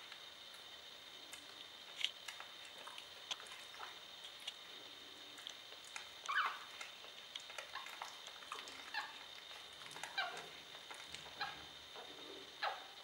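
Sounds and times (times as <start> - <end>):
puppies squeaking and mewing: 6.3 - 6.7.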